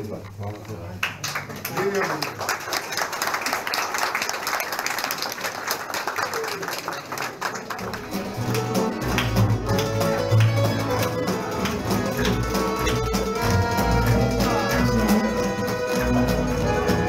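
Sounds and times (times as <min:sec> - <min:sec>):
crowd chatter: 0:00.0 - 0:17.0
applause: 0:01.0 - 0:17.0
string band playing: 0:07.6 - 0:17.0.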